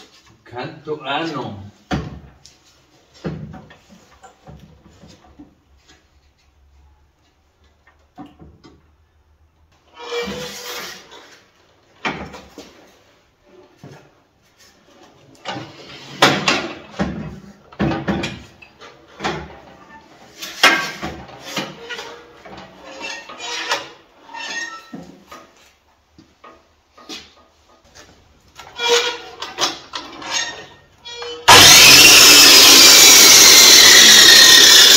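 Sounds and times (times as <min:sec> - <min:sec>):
miter saw and stand knocking: 0:31.5 - 0:34.9.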